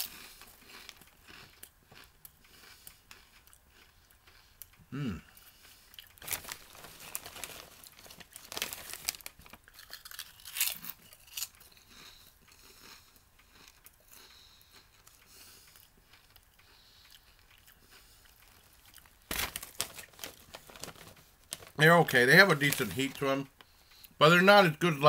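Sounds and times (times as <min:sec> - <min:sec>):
potato chips crunching: 0:00.0 - 0:04.4, 0:05.8 - 0:14.2, 0:17.1 - 0:23.3
foil chip bag crinkling: 0:06.0 - 0:11.6, 0:18.4 - 0:23.5.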